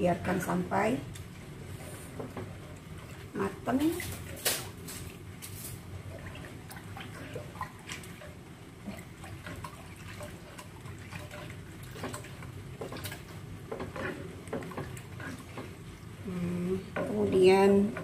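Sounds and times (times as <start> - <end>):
low steady hum: 0.0 - 18.0
liquid sloshing and dripping: 2.2 - 15.8.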